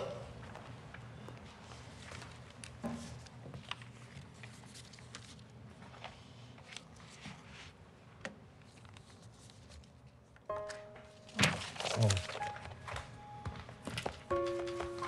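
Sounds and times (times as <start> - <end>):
paper sheets rustling: 1.8 - 7.8, 11.2 - 13.1.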